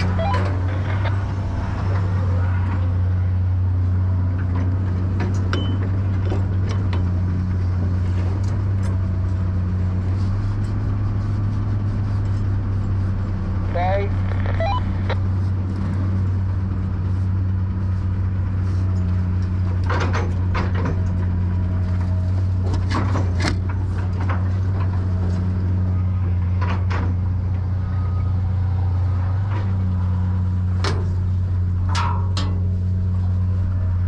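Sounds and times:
engine running: 0.0 - 34.0
knocks and clatters: 19.0 - 25.5, 26.4 - 27.7, 30.8 - 32.8.

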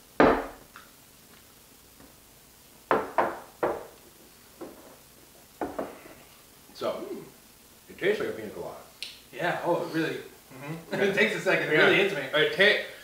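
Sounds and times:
cans knocking on tabletop: 0.2 - 0.6, 2.9 - 4.0, 5.6 - 6.0.

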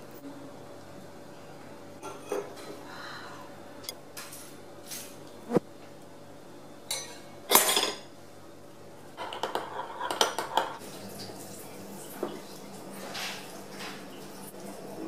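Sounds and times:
metal utensils clinking on pot: 6.9 - 8.1.

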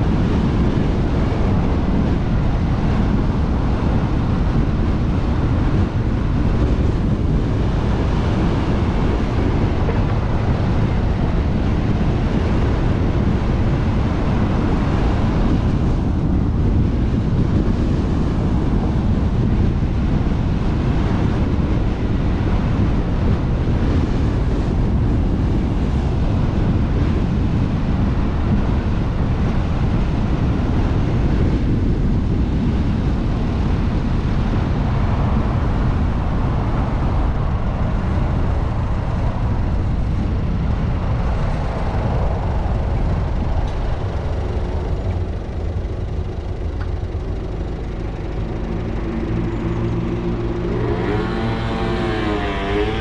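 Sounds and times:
road and tyre noise: 0.0 - 53.0
wind noise on microphone: 0.0 - 53.0.

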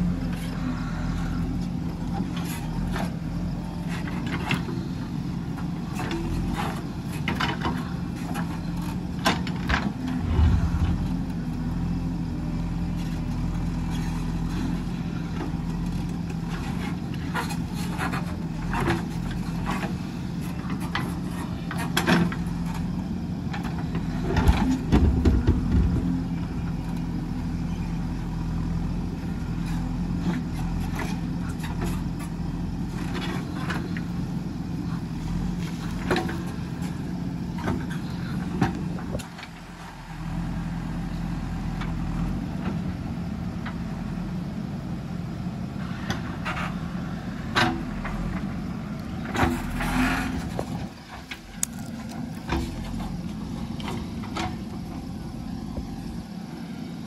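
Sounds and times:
diesel engine running: 0.0 - 57.0
heavy thuds: 10.0 - 11.9.

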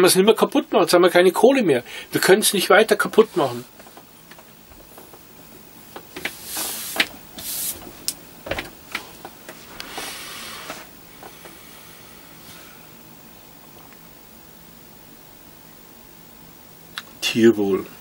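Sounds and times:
rustling hiss: 1.8 - 14.0.

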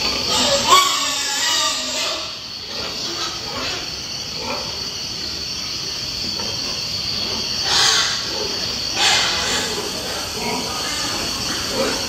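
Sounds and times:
pig squealing: 0.0 - 4.9, 7.4 - 12.0
pigs grunting: 0.0 - 5.3, 6.2 - 12.0.

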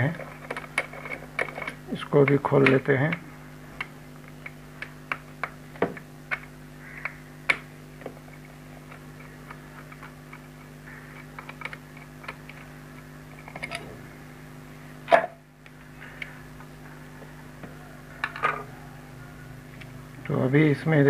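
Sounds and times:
steady low hum: 0.0 - 21.0
screwdriver clicking on plastic: 8.9 - 12.7.

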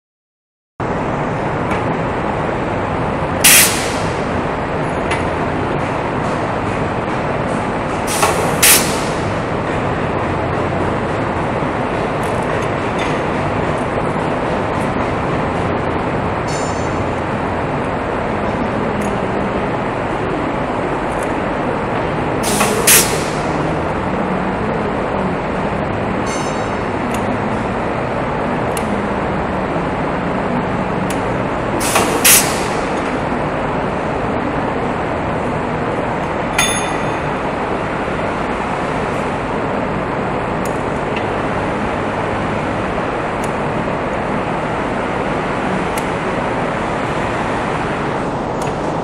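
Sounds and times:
loud machinery noise: 0.8 - 49.0
short sharp hiss: 3.5 - 4.1.

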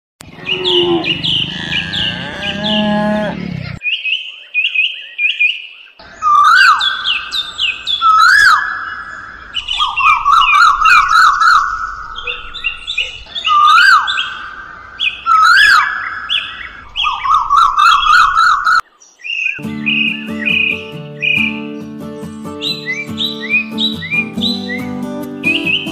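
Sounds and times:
low drawn-out animal call: 0.2 - 3.8
birds chirping: 0.2 - 25.9.

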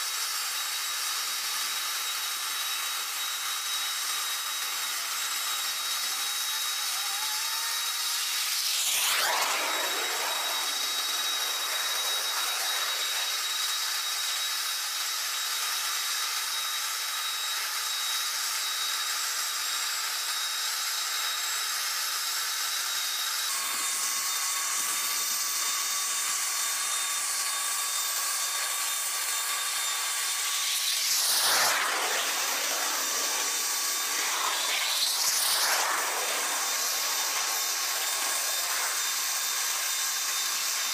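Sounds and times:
jet turbine whine: 0.0 - 40.9
whoosh: 8.4 - 14.1, 30.0 - 40.0
rushing hiss: 8.5 - 14.0, 30.1 - 40.4.

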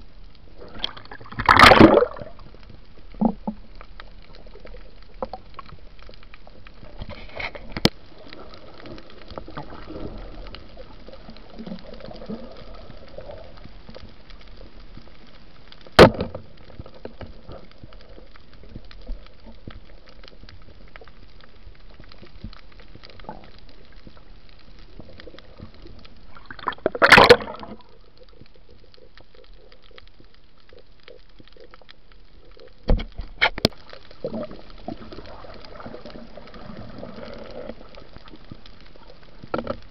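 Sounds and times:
faint crackle of ticks: 0.0 - 39.9
sharp underwater knocks: 16.0 - 16.4.

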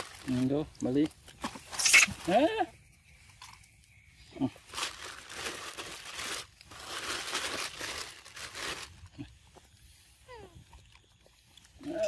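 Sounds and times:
crinkly rustling: 0.0 - 2.5, 4.6 - 12.0
monkey squeaking: 1.6 - 2.7.

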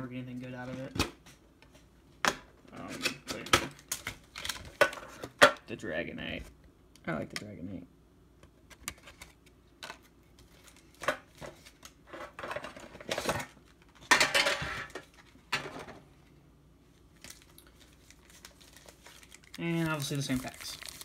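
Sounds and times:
plastic rustling: 16.9 - 21.0.

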